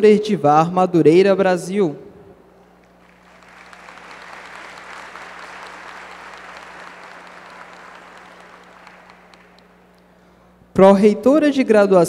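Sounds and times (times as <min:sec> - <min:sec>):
audience applauding: 0:02.8 - 0:10.1.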